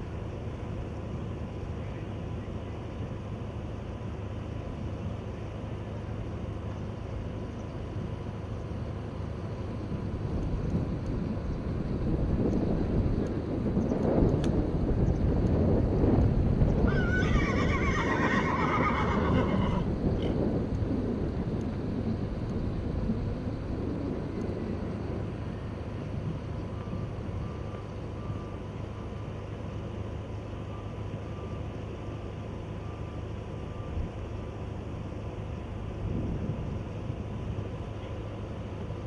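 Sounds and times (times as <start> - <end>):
low background rumble: 0.0 - 39.0
horse whinnying: 16.9 - 19.9.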